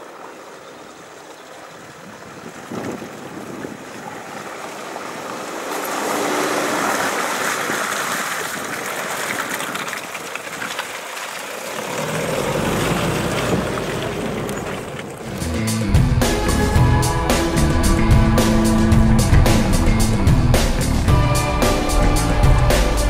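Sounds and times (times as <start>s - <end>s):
tyres churning through mud: 0.0s - 23.0s
pickup engine under load: 11.5s - 23.0s
deep rumble: 12.1s - 23.0s.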